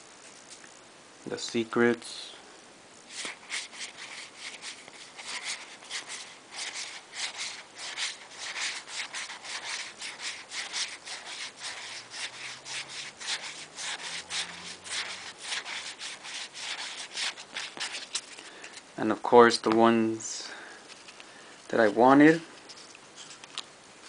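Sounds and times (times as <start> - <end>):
cards sliding off a stack: 3.1 - 18.9.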